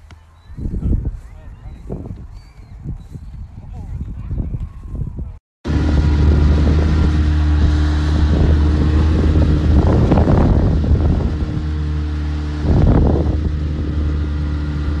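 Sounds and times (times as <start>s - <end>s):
wind on the microphone: 0.4s - 11.8s, 12.6s - 14.2s
motorboat engine humming: 5.7s - 15.0s.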